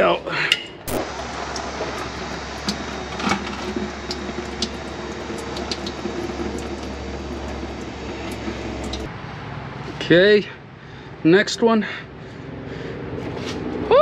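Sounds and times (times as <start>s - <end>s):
oil pouring into bucket: 1.0s - 9.1s.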